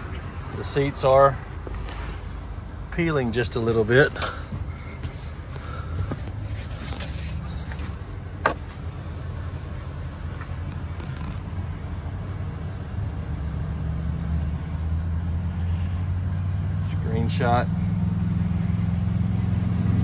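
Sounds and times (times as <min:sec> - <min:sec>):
engine idling: 0:00.0 - 0:13.8.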